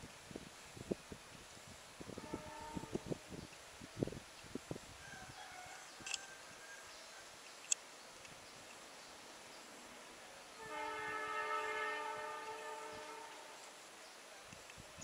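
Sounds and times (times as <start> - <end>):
locomotive air horn blast: 2.1 - 3.2, 10.5 - 13.7.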